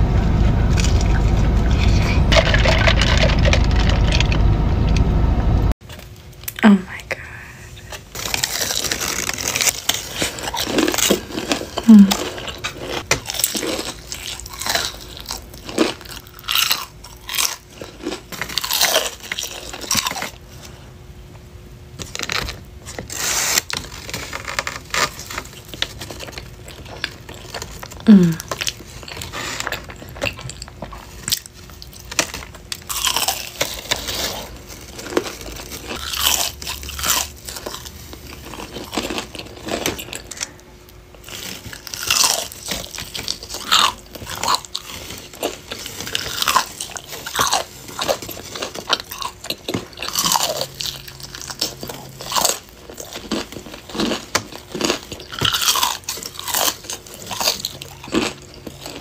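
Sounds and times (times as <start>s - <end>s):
crunching and chewing fried chicken: 0.3s - 4.4s, 5.9s - 21.1s, 21.9s - 59.0s
person humming mm: 11.9s - 12.2s, 28.0s - 28.5s.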